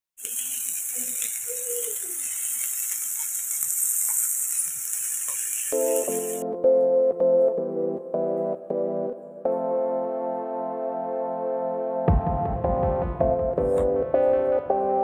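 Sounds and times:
oil sizzling in a pan: 0.2s - 6.4s
keyboard music: 5.7s - 15.0s.

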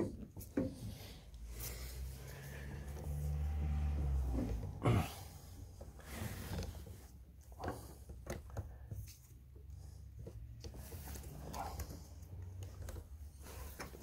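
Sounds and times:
small clicks knocks and rustles: 5.8s - 14.0s.

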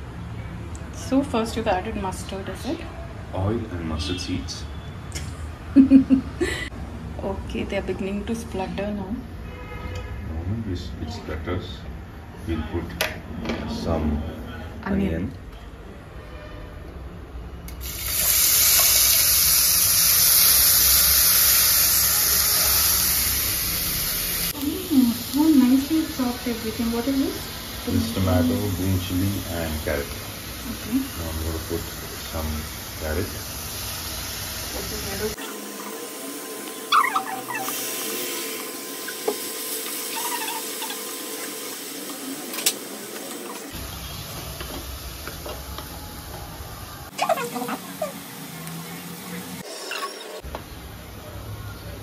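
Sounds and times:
onions sizzling in hot oil: 17.8s - 49.9s.

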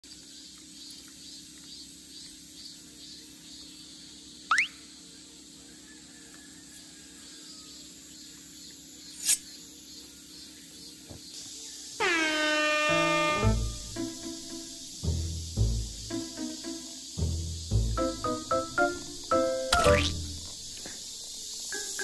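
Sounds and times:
brief high squeaks: 12.0s - 13.5s.

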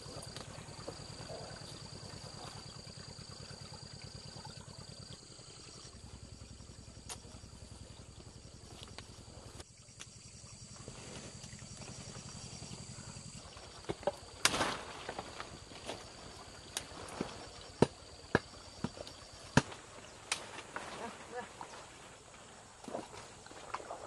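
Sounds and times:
low pulsing hum: 0.0s - 16.7s.

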